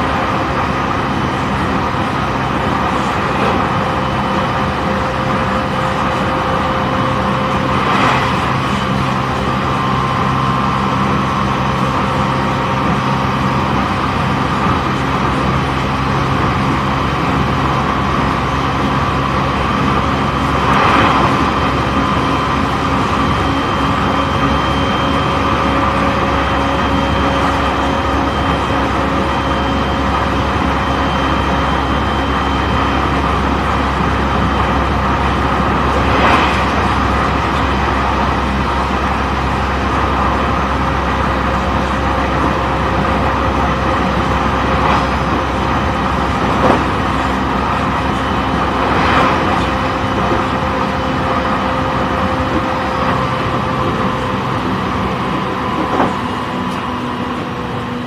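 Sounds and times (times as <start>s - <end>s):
train air rushes: 0.0s - 12.6s, 17.3s - 24.6s, 33.5s - 39.6s, 44.3s - 52.1s
traction motor hum: 0.0s - 58.0s
wheel-on-rail rumble: 0.0s - 58.0s.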